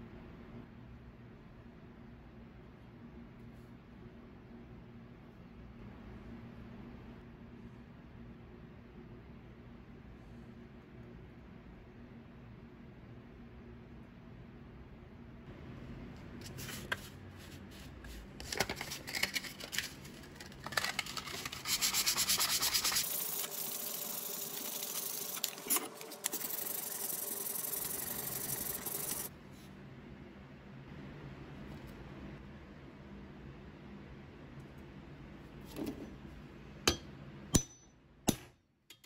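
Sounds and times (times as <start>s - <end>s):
sandpaper scrubbing on wood: 21.2s - 29.3s.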